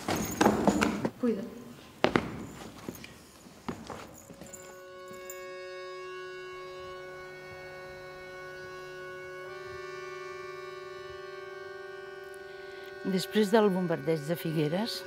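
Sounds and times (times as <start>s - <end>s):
music of held chords: 4.4s - 15.0s.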